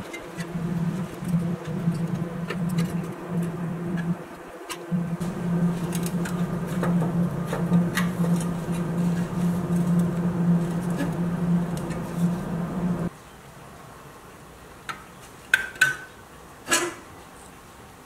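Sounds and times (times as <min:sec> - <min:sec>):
steady low hum: 0:00.0 - 0:13.1.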